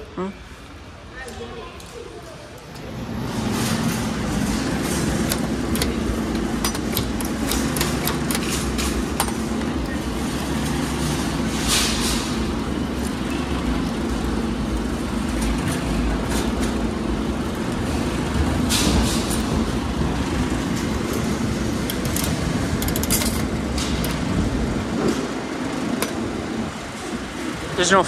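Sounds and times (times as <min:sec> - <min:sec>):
low hum and rumble: 0:02.8 - 0:27.8
vending machine crank clicks: 0:04.2 - 0:10.0, 0:20.7 - 0:24.4.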